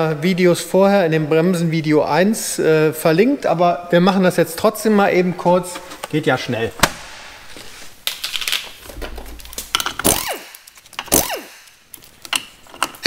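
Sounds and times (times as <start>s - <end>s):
impact wrench spinning: 9.7s - 11.9s
handling clicks and knocks: 11.8s - 13.0s.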